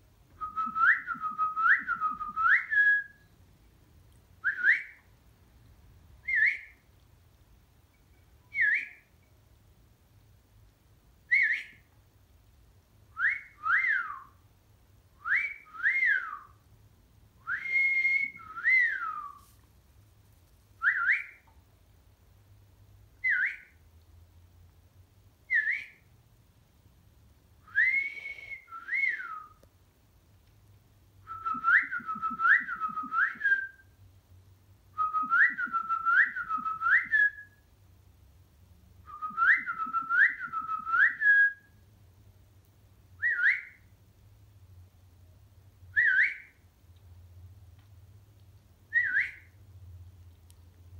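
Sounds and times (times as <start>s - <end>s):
person whistling: 27.7s - 29.5s.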